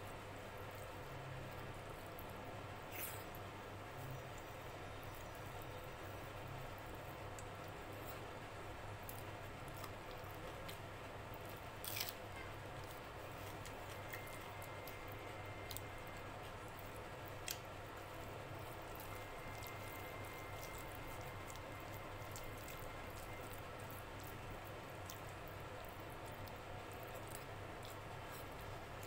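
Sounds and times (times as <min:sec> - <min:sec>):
steady low hum: 0:00.0 - 0:29.0
fingers squishing rice: 0:08.9 - 0:29.0.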